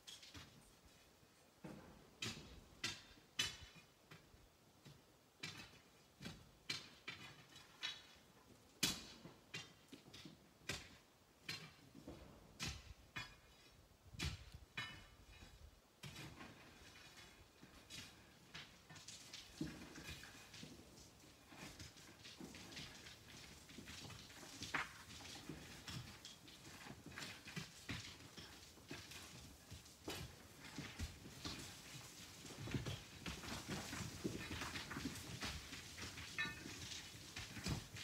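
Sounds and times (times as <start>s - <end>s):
hand tools striking rock: 2.2s - 8.2s, 8.8s - 11.9s, 12.5s - 38.0s.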